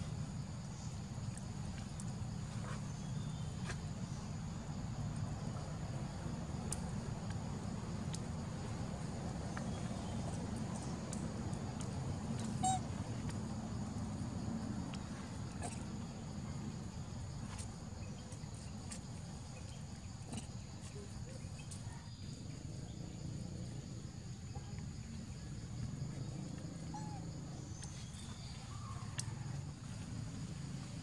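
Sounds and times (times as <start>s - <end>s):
faint insect drone: 0.0s - 31.0s
small ticks: 1.2s - 3.0s, 9.5s - 13.4s, 27.7s - 29.4s
bird chirps: 12.5s - 12.8s.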